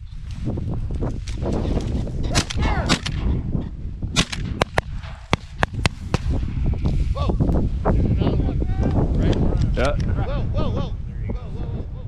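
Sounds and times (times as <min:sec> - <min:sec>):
shotgun shots: 0:02.3 - 0:03.3, 0:04.1 - 0:06.4.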